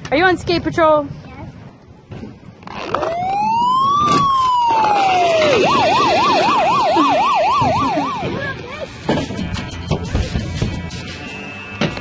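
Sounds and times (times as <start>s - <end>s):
toy police siren wailing and yelping: 3.0s - 8.4s.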